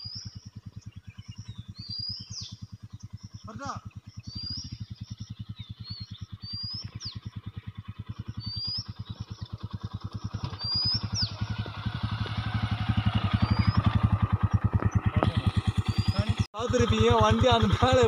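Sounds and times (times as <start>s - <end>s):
motorcycle engine at low revs: 0.0s - 18.0s.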